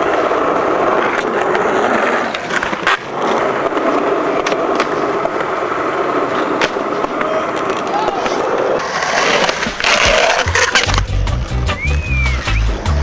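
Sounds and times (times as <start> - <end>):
skateboard clacking on ground: 0.0 - 12.0
skateboard wheels rolling on concrete: 0.0 - 13.0.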